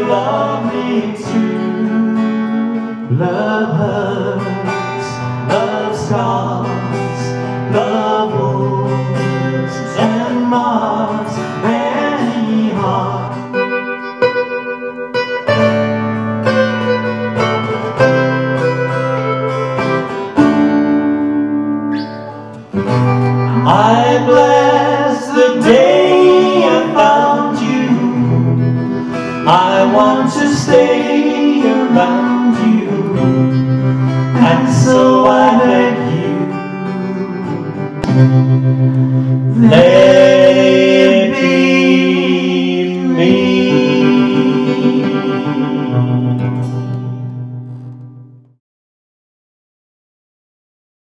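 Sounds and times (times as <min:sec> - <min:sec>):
people singing: 0:00.0 - 0:13.7, 0:23.5 - 0:38.2, 0:39.3 - 0:46.8
acoustic guitars playing country: 0:00.0 - 0:48.6.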